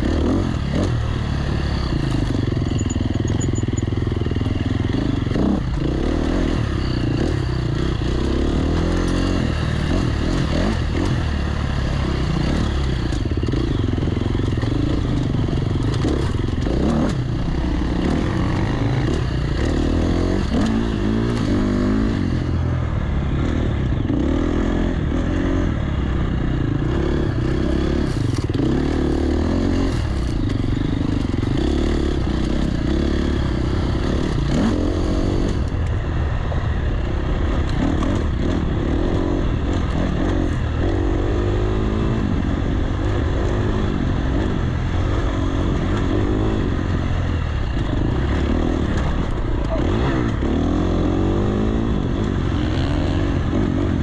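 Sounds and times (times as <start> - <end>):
dirt bike engine revving: 0.0 - 35.7, 37.5 - 54.0.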